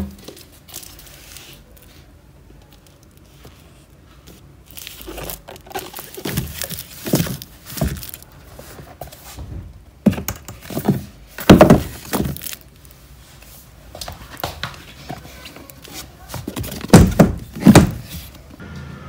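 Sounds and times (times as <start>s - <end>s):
books knocking and scraping on shelf: 5.2s - 12.6s, 14.0s - 18.5s.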